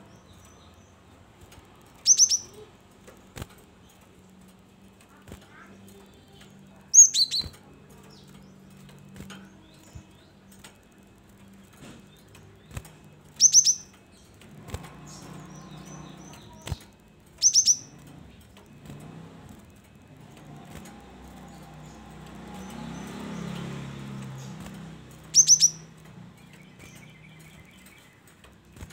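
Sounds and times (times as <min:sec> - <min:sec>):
bird chirping high and sharp: 0:02.0 - 0:02.6, 0:06.9 - 0:07.6, 0:12.8 - 0:14.0, 0:17.4 - 0:18.1, 0:24.6 - 0:28.1
bird fluttering in cage: 0:14.3 - 0:17.7.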